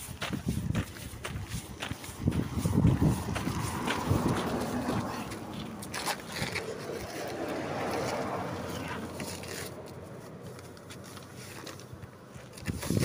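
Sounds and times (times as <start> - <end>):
wind buffeting microphone: 0.0 - 9.2, 12.5 - 13.0.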